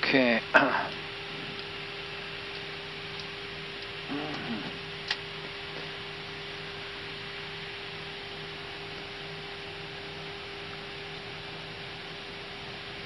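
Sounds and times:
low hum: 0:00.4 - 0:09.6.

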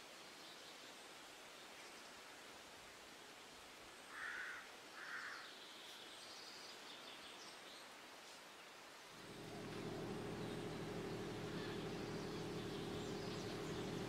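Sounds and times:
faint bird chirps: 0:09.2 - 0:14.0.

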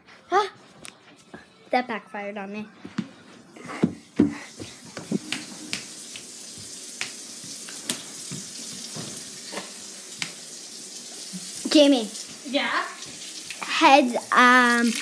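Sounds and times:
water running from tap into sink: 0:04.3 - 0:15.0.

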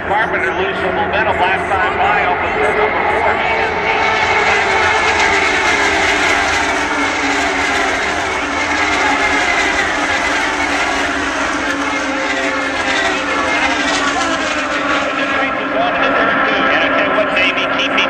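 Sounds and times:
racing cars whining past: 0:00.0 - 0:18.0.

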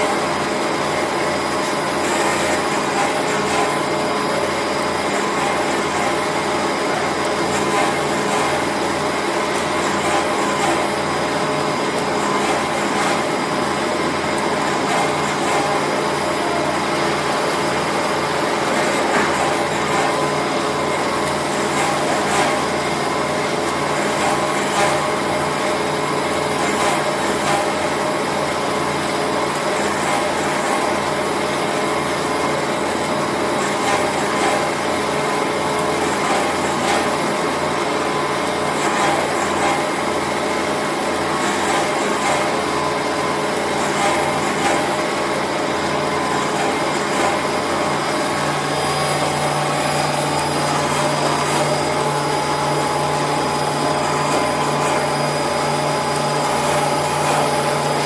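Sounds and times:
drill press motor hum: 0:38.4 - 0:58.0.

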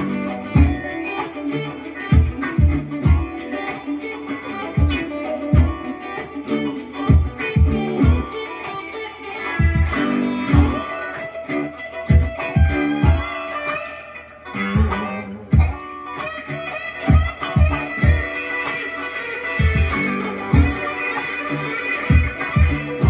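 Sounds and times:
electric guitar plucked licks: 0:00.0 - 0:23.0
kick drum beat: 0:00.5 - 0:00.9, 0:02.1 - 0:03.4, 0:04.8 - 0:05.8, 0:07.1 - 0:08.3, 0:09.6 - 0:10.9, 0:12.1 - 0:13.3, 0:14.8 - 0:15.8, 0:17.1 - 0:18.3, 0:19.6 - 0:20.9, 0:22.1 - 0:23.0.

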